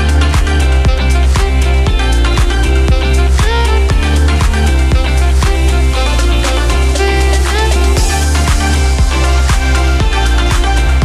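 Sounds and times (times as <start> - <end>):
music with heavy bass and beat: 0.0 - 11.0.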